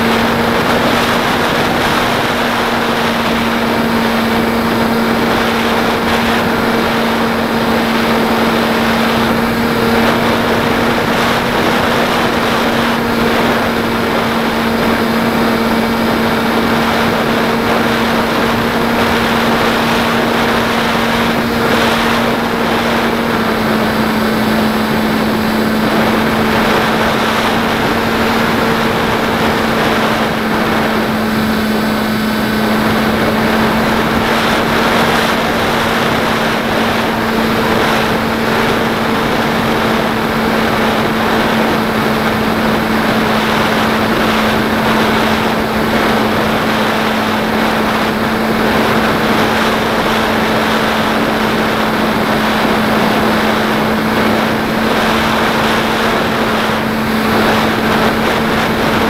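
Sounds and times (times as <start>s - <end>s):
rushing airflow: 0.0s - 59.0s.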